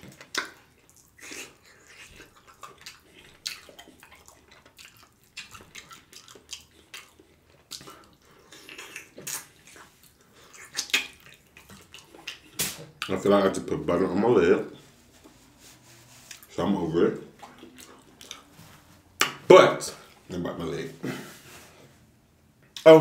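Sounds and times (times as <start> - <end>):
person biting and chewing: 0.0 - 13.1
wet mouth smacks: 0.1 - 0.6, 1.2 - 13.2.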